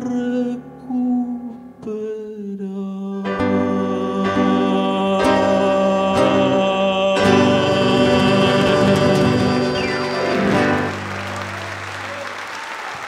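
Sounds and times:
man singing a long low note: 0.0s - 10.4s
band playing loud chords: 3.4s - 12.2s.

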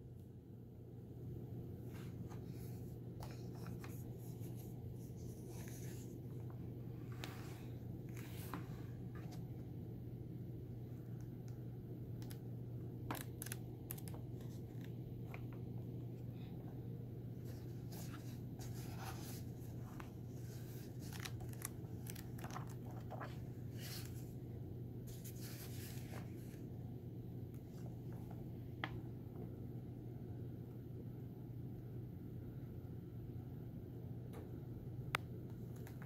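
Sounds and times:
steady low hum: 0.0s - 36.0s
book pages turning: 1.9s - 9.5s, 13.1s - 15.7s, 17.4s - 24.3s, 25.1s - 26.6s.

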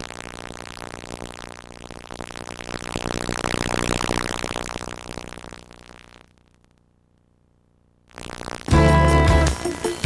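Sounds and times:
music: 8.6s - 10.0s.

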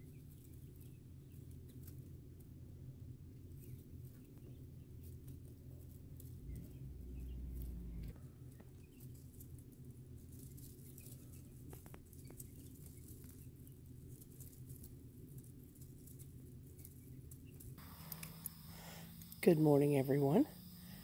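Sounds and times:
chicks peeping: 0.0s - 2.0s, 3.3s - 19.6s
chicks pattering on wood shavings: 0.0s - 21.0s
low rumble: 6.0s - 8.8s
small clicks and scratches: 7.6s - 19.4s.

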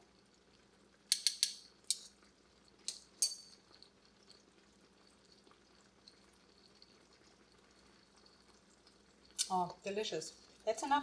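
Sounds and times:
metal spoon clinking on pan: 1.1s - 2.1s, 2.9s - 3.6s.

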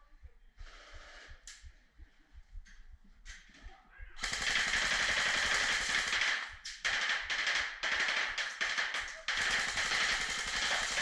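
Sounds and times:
electric airsoft gun firing: 4.2s - 11.0s.

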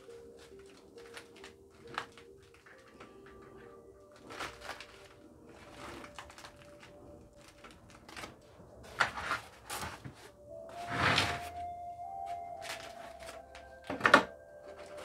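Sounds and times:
gritty scrapes: 4.2s - 11.6s.

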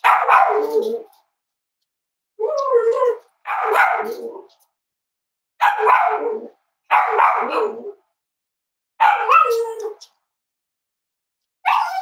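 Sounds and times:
dog barking: 0.0s - 1.1s, 3.4s - 4.5s, 5.6s - 8.0s, 9.0s - 10.0s, 11.6s - 12.0s.

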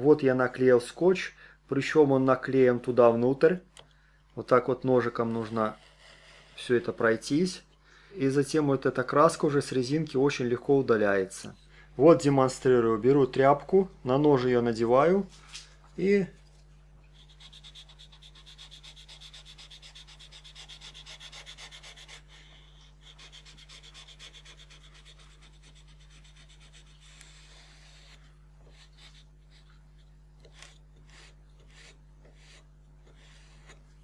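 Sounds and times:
rag rubbing on rubber seal: 30.4s - 34.0s.

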